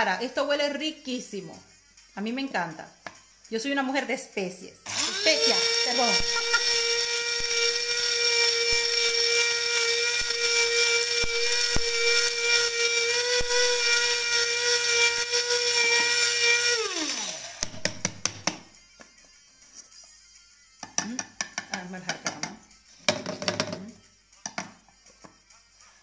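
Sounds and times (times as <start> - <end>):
spice grinder whining: 4.9 - 17.7.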